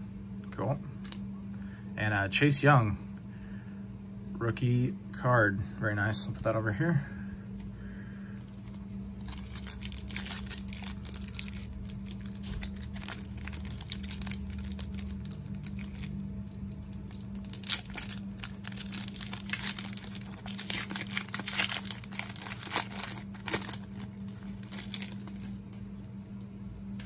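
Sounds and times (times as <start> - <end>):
plastic wrapper tearing and crinkling: 8.6 - 25.8.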